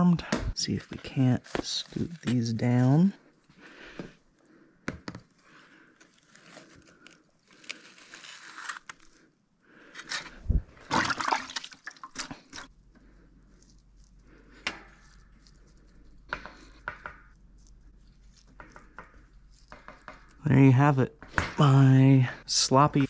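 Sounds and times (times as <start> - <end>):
hands splashing in bucket of water: 10.1 - 12.7.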